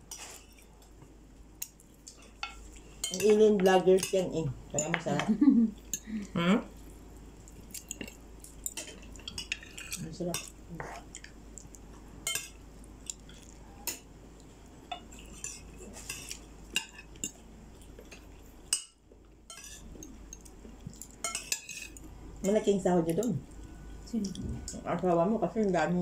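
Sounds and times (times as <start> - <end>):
cutlery clinking on plates: 14.9 - 17.4, 18.1 - 22.0.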